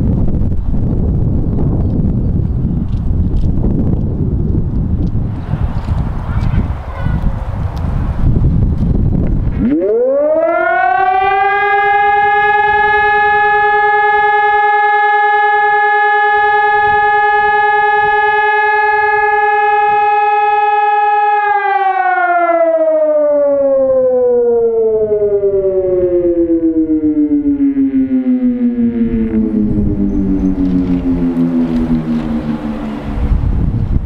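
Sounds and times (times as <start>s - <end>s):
siren alarm: 9.5s - 34.0s.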